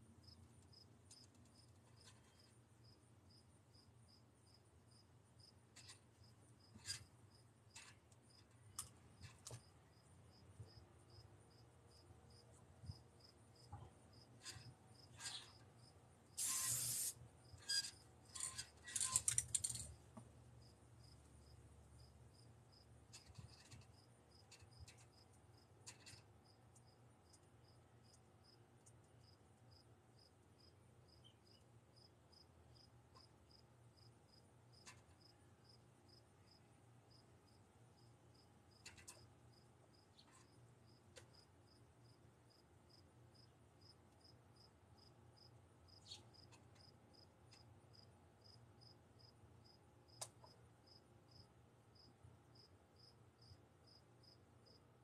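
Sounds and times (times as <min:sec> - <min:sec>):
spray can hissing: 0:16.4 - 0:17.2.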